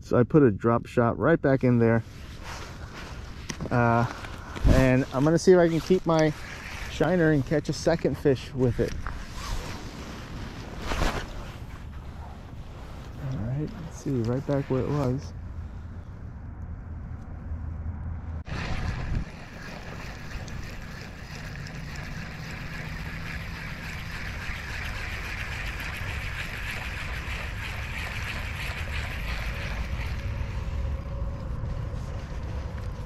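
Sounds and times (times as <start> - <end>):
wind rushing over microphone: 4.5 - 7.8, 8.5 - 21.1.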